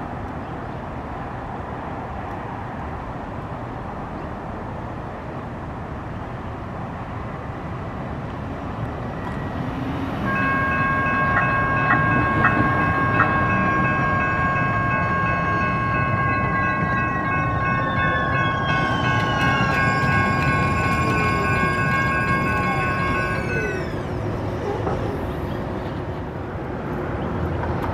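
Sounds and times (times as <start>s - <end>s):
light-rail car rolling rumble: 0.0s - 27.9s
wheels squealing on curve: 17.8s - 25.9s.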